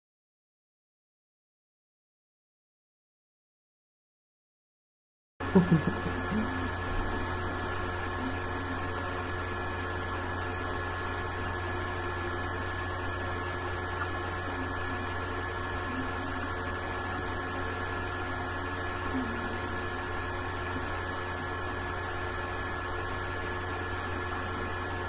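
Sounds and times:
electrical hum with hiss: 0:05.4 - 0:25.0.

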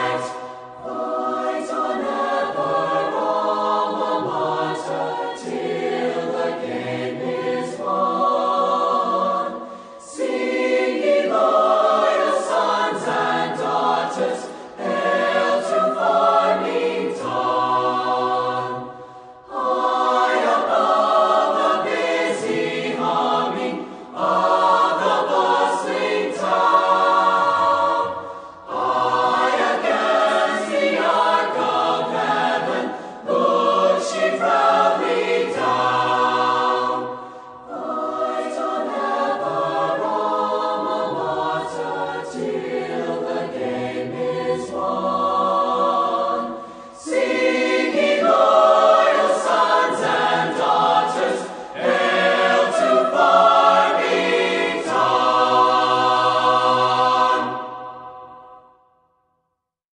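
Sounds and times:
choir singing sustained phrases: 0:00.0 - 0:59.2.

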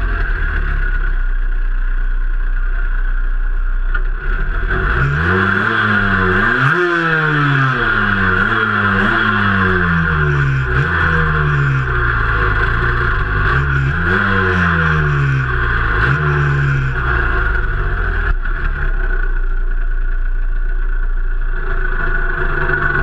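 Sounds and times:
two-stroke engine revving and idling: 0:00.0 - 0:23.0.

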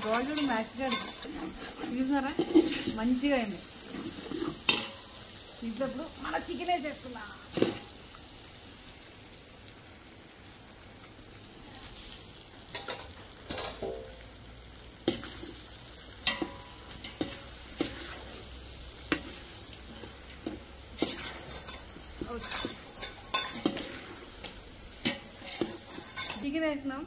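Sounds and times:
spoon knocking and scraping pan: 0:00.0 - 0:05.2, 0:07.5 - 0:07.9, 0:12.7 - 0:14.2, 0:15.1 - 0:15.6, 0:16.2 - 0:26.4
chicken sizzling in a pan: 0:00.0 - 0:26.5.

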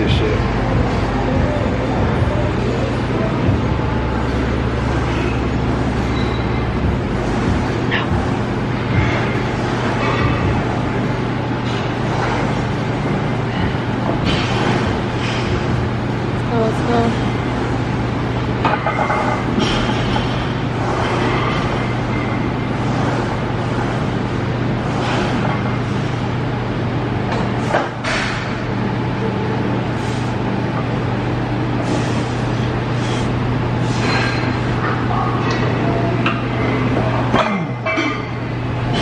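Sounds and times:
exercise machine noises: 0:00.0 - 0:39.0
steady low hum: 0:00.0 - 0:39.0.

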